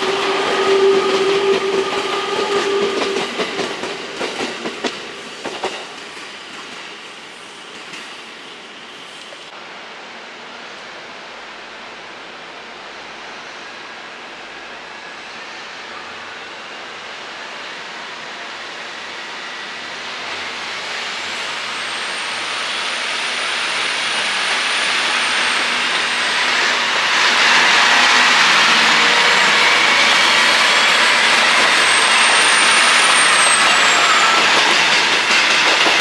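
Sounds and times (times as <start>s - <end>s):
electric train running: 21.2s - 36.0s.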